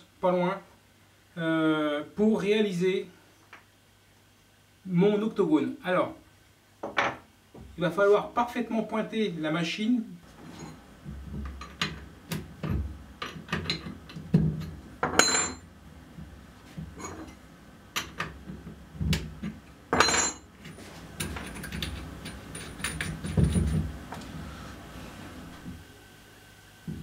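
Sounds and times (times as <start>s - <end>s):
spanner clinking on metal: 21.2s - 23.8s.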